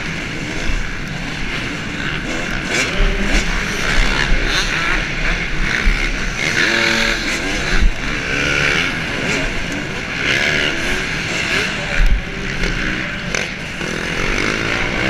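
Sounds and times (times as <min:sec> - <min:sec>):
wind rumble on microphone: 0:00.0 - 0:10.9
dirt bike engine revving: 0:00.0 - 0:15.0.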